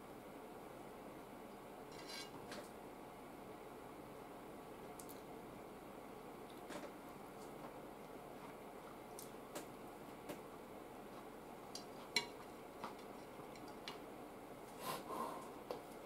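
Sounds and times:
quiet chewing: 6.4 - 10.4, 11.0 - 14.0
chopsticks clicking on a plate: 11.7 - 14.0.

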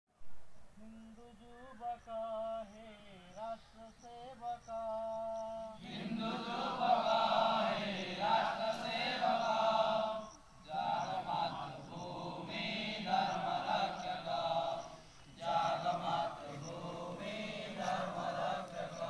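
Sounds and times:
man singing: 0.8 - 5.8
group of men singing: 2.1 - 19.0.

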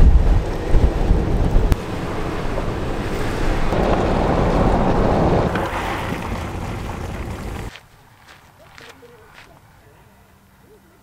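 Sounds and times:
wind rushing over microphone: 0.0 - 7.7
tyre and road rumble: 0.0 - 9.5.

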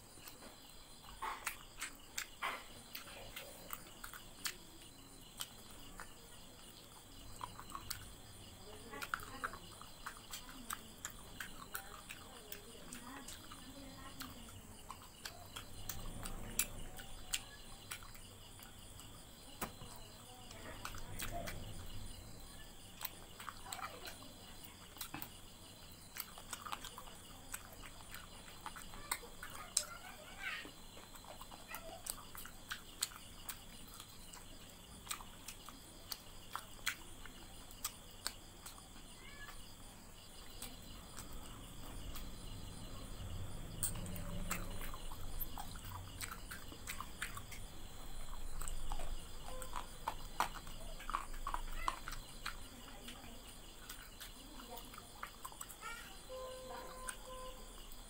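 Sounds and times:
lip smacks: 0.0 - 55.8
chewing: 0.0 - 58.0
fingers clicking on a plate: 43.7 - 58.0.

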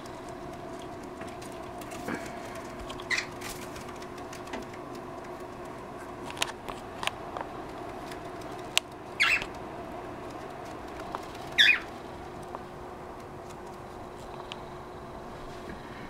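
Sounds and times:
sharp clicks: 0.0 - 9.6
steady low hum: 0.0 - 16.0
cockatiels chirping: 9.2 - 9.5, 11.5 - 11.9.

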